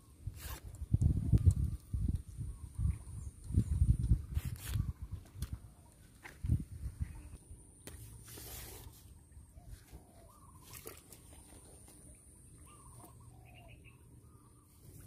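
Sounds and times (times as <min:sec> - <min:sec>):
faint bird chirping: 0:06.9 - 0:15.0.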